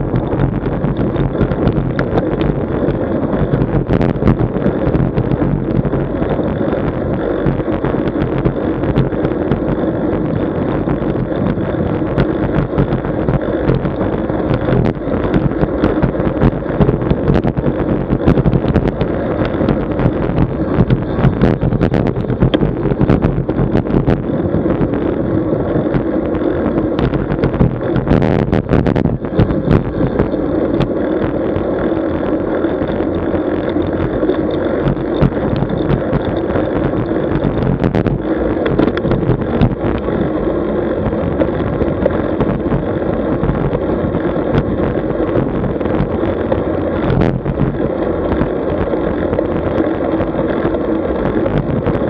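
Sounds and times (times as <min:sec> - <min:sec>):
road noise: 0:00.0 - 0:52.0
wind rushing over microphone: 0:00.0 - 0:52.0
clicks and knocks from bumps: 0:32.8 - 0:40.1.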